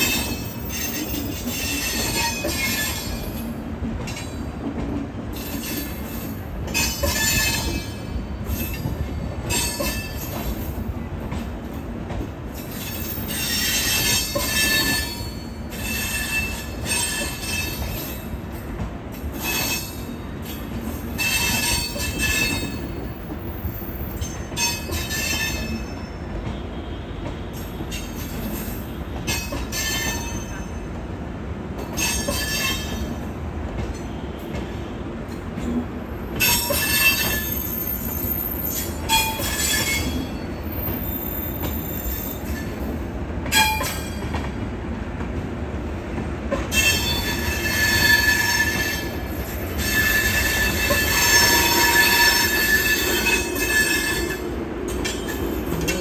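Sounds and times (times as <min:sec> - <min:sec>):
train wheels rumbling on rail: 0:00.0 - 0:56.0
high-pitched wheel squeals: 0:21.2 - 0:26.2, 0:36.4 - 0:42.7, 0:46.7 - 0:56.0.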